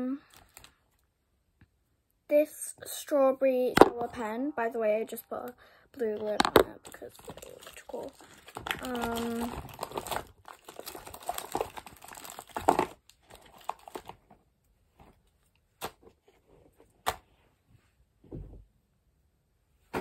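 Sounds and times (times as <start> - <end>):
candy packaging crinkling: 0.2 - 0.8, 5.3 - 14.4
soft thump: 18.2 - 18.6.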